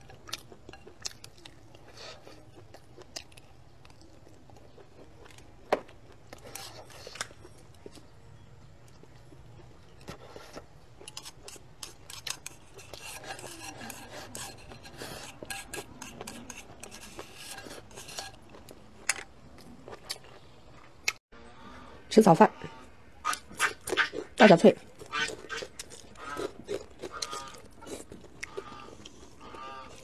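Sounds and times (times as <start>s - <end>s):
chopsticks scraping ceramic bowl: 11.0s - 18.6s.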